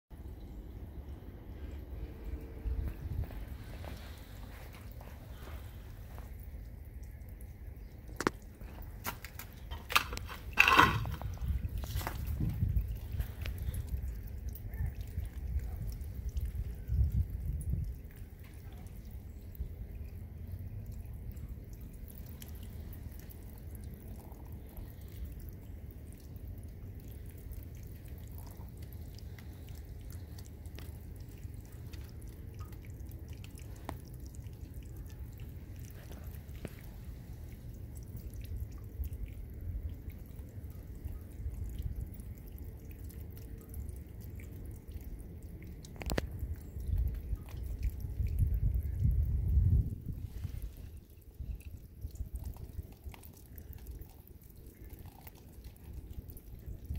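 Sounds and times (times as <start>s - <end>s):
low steady rumble: 0.1s - 56.9s
water dripping on metal: 0.1s - 56.9s.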